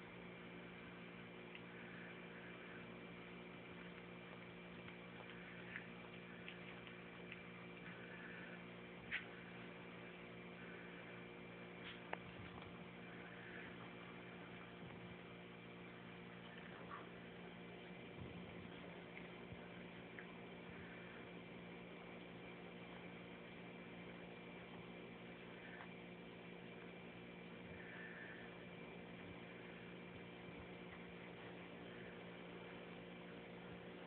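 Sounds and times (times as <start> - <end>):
low electrical hum: 0.0 - 34.0.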